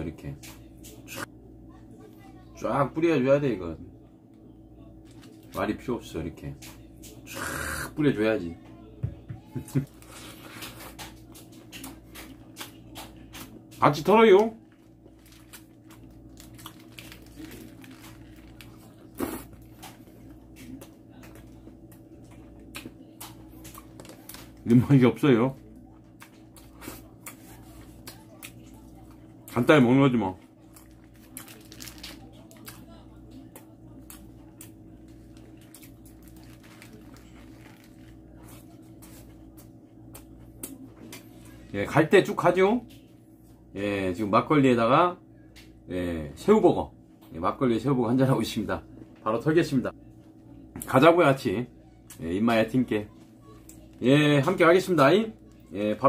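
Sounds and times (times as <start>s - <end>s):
person chewing food: 14.8s - 24.7s.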